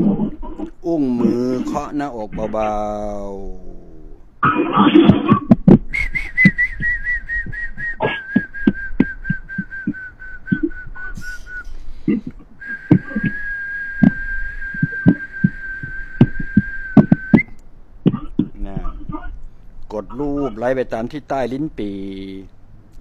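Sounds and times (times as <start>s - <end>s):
long high whistle: 5.9s - 11.8s, 12.6s - 17.6s
palm tapping on chest: 15.8s - 17.5s.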